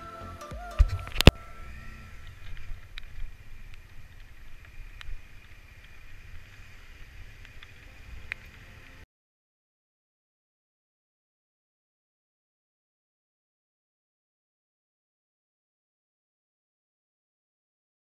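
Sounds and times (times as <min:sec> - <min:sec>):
motorcycle engine rumble: 0:00.0 - 0:09.0
wind on microphone: 0:00.0 - 0:09.0.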